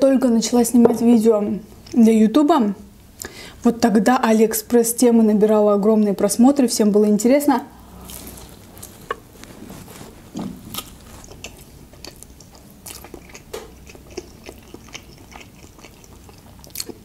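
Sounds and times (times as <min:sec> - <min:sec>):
biting and chewing pastry: 0:07.9 - 0:17.0.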